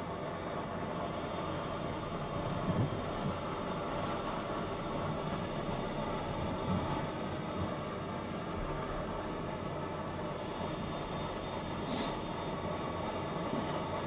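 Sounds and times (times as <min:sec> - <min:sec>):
machinery hum and hiss: 0:00.0 - 0:14.0.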